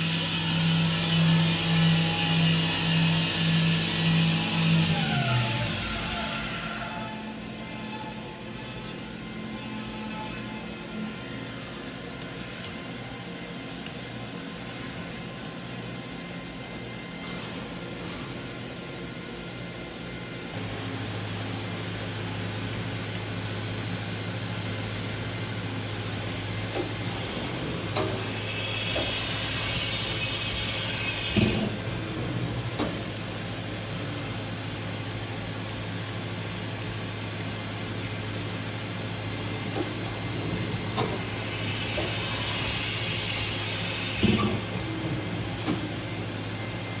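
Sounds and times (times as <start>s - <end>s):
machine humming: 0.0s - 18.1s
machine electrical hum: 0.0s - 47.0s.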